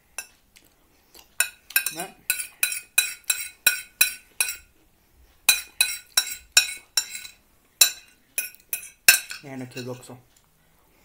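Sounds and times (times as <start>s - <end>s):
cutlery clinking and scraping on plate: 1.4s - 4.7s, 5.4s - 10.2s.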